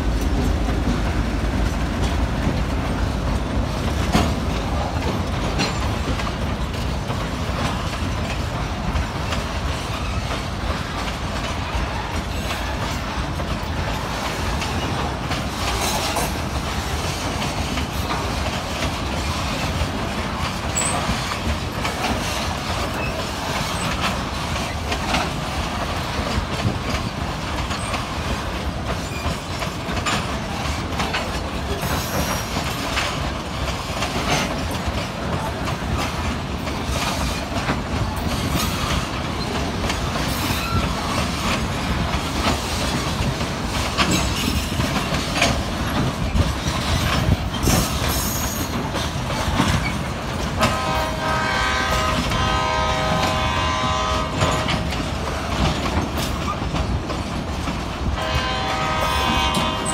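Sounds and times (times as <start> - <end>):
train wheels rumbling: 0.0 - 59.9
wheels clacking over rail joints: 0.0 - 59.9
locomotive air horn chord: 50.6 - 54.7, 58.2 - 59.9.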